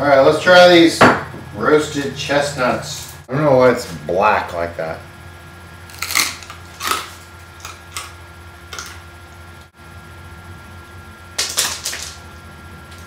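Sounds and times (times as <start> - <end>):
person chewing crunchy chestnut: 5.8 - 9.2.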